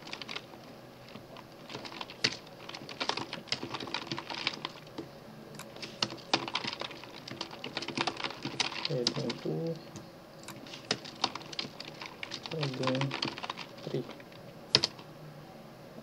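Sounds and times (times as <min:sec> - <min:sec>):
typing on computer keyboard: 0:00.0 - 0:00.5, 0:01.7 - 0:04.8, 0:05.6 - 0:09.8, 0:10.4 - 0:15.0.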